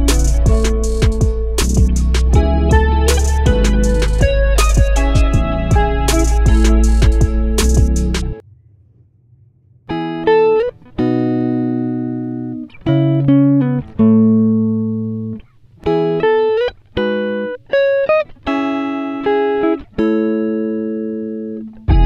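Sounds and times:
plucked string melody: 0.0s - 8.4s.

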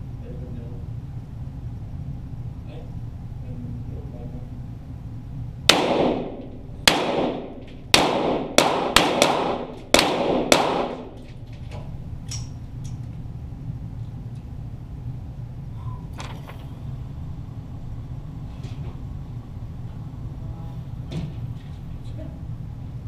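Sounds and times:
pistol shots echoing in a room: 5.6s - 11.6s.

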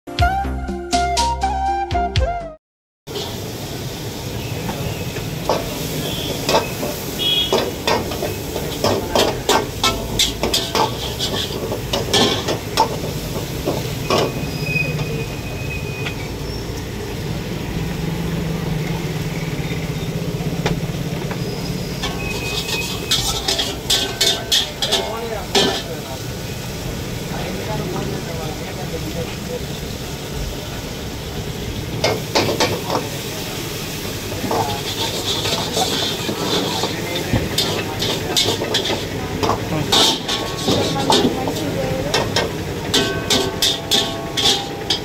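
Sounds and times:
food sizzling: 3.1s - 45.0s
gas burners rushing: 3.1s - 45.0s
ladle clanking against wok: 4.4s - 16.7s, 20.6s - 26.2s, 31.9s - 45.0s.

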